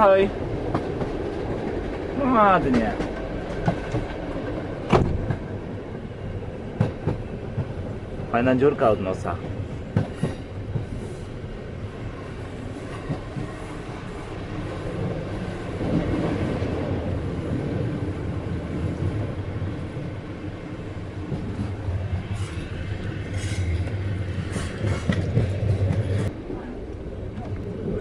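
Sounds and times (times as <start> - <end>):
train wheels rumbling on rails: 0.0 - 28.0.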